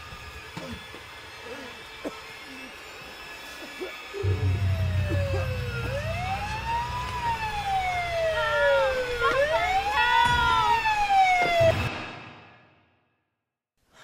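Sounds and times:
police siren wailing: 1.3s - 12.0s.

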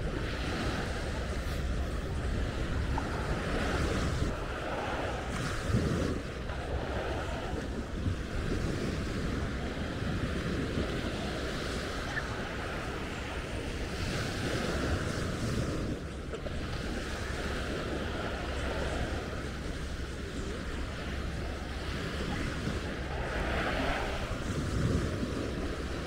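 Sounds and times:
small waves washing onto sand: 0.0s - 26.0s
wind buffeting microphone: 0.0s - 26.0s.

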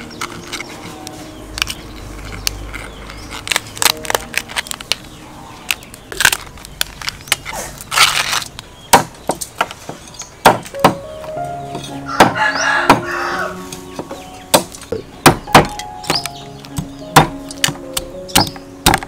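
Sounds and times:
crab shells cracking: 0.0s - 8.7s
shells crunching: 0.0s - 19.0s.

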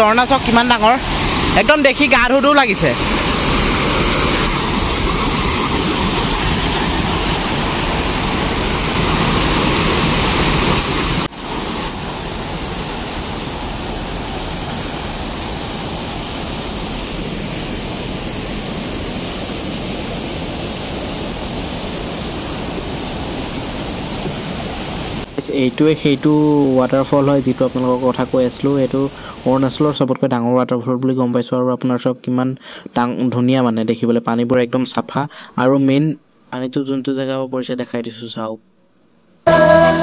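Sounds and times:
white water cascading over boulders: 0.0s - 30.0s.

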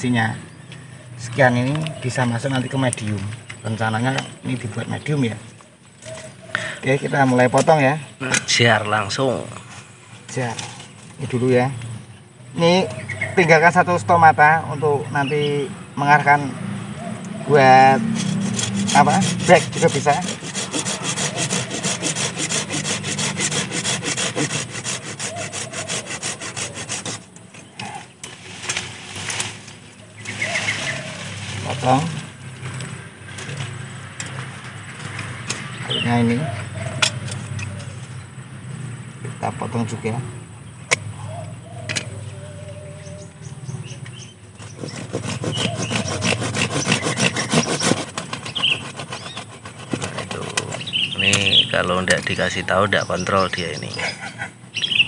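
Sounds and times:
hand saw cutting a stem: 17.5s - 28.0s, 44.6s - 52.2s.

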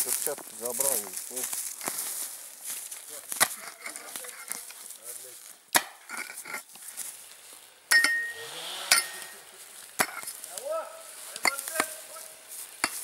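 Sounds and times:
earth scraping: 0.0s - 13.0s
digging tool striking stony soil: 5.7s - 6.6s, 10.0s - 10.5s, 11.3s - 12.0s, 12.8s - 13.0s
metal ringing on stone: 7.9s - 9.4s.

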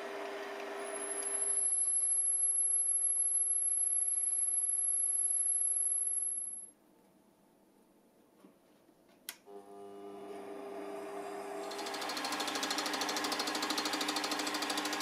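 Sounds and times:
lathe running with low hum: 0.0s - 2.0s, 9.5s - 15.0s
high-pitched whine: 0.8s - 6.7s
drill boring into workpiece: 11.6s - 15.0s.

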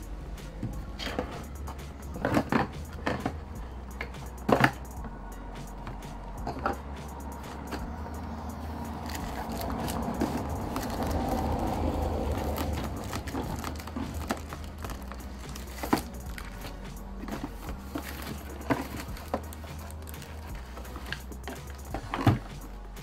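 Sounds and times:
steady low rumble: 0.0s - 23.0s
plastic wrap crinkling: 8.9s - 22.5s
plastic parts clicking and tapping: 12.3s - 22.5s.

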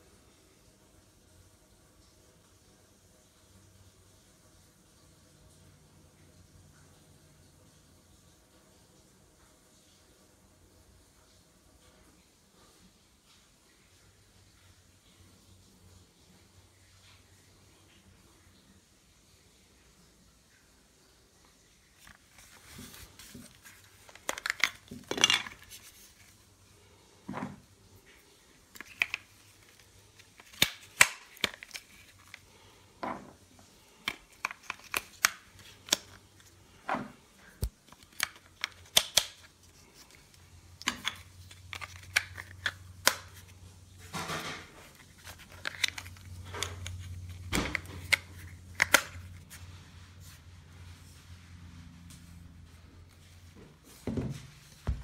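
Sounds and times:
plastic clicks and snaps: 37.5s - 40.1s, 45.2s - 49.2s.

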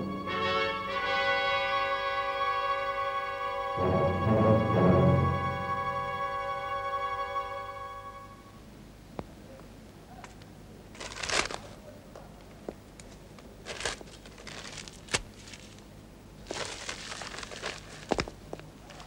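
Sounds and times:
paper tearing off glass: 11.0s - 11.7s.

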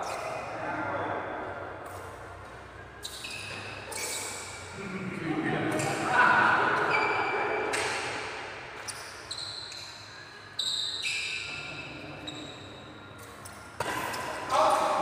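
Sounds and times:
shoes squeaking on floor: 0.0s - 1.1s, 1.8s - 4.8s, 6.7s - 15.0s
racket hitting shuttlecock: 13.2s - 15.0s.

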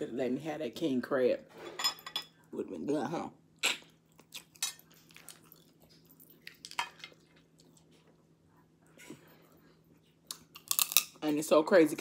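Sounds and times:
chewing: 3.6s - 11.0s.

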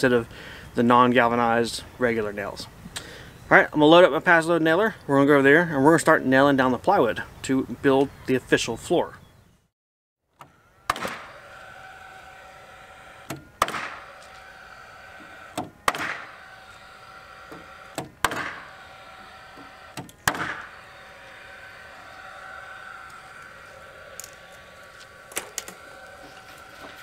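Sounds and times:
nail gun motor whirring: 10.3s - 27.0s
nail gun firing: 10.9s - 11.4s, 13.2s - 21.1s
nail gun click: 13.2s - 14.5s, 15.5s - 16.4s, 17.5s - 18.9s, 19.5s - 20.8s, 24.1s - 26.2s.

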